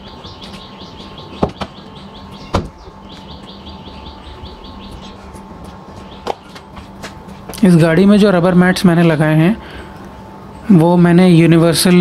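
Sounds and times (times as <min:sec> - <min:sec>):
small bird chirping: 0:00.0 - 0:05.3
steady low hum: 0:00.0 - 0:12.0.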